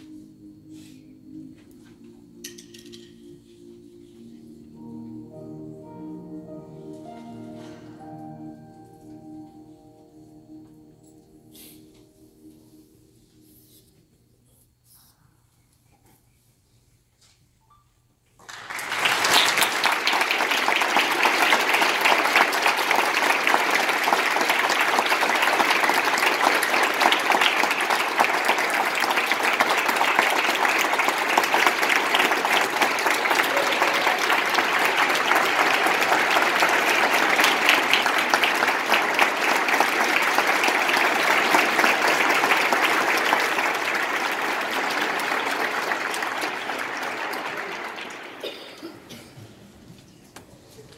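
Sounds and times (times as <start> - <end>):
audience clapping: 18.4 - 49.2.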